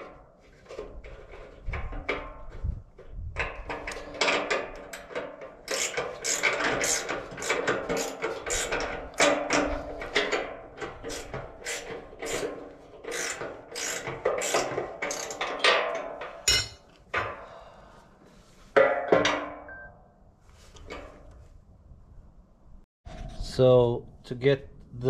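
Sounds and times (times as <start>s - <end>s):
metal beam knocking and scraping: 18.7s - 19.7s.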